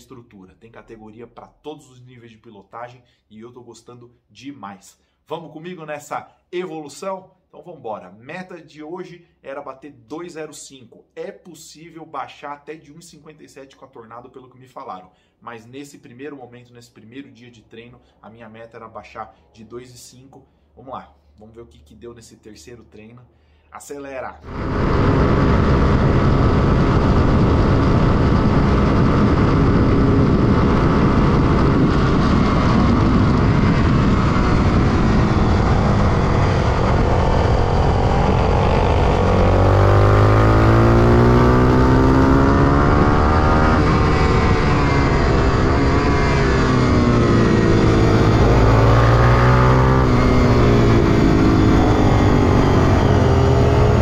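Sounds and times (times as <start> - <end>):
motorcycle engine revving: 24.5 - 54.0
wind rush over microphone: 24.5 - 54.0.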